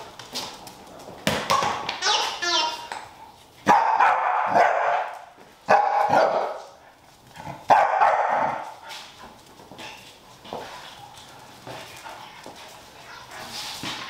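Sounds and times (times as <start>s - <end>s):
dog barking: 3.6s - 6.8s, 7.7s - 8.7s.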